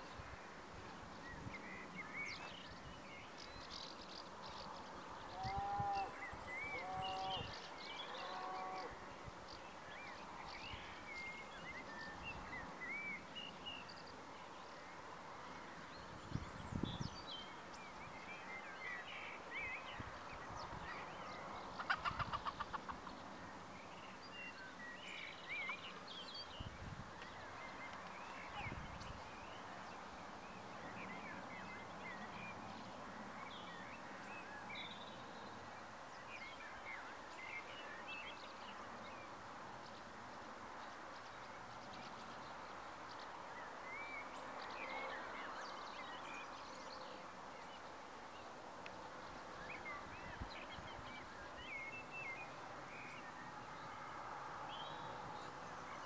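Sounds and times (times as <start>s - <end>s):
faint background noise: 0.0s - 56.0s
birds chirping and calling: 21.0s - 23.3s.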